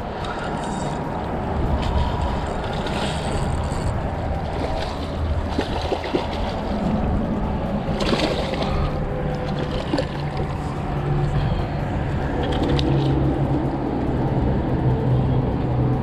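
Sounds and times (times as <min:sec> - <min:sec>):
fish splashing in water: 0:00.0 - 0:10.8
steady low rumble: 0:00.0 - 0:16.0.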